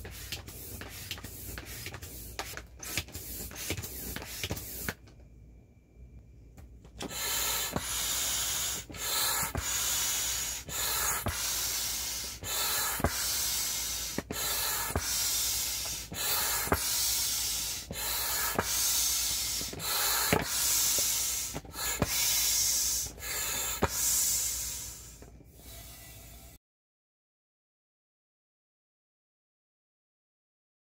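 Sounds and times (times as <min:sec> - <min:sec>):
air pump hissing through hose: 0:00.0 - 0:05.1, 0:07.0 - 0:26.6
vinyl rubbing and ticks: 0:00.0 - 0:05.2.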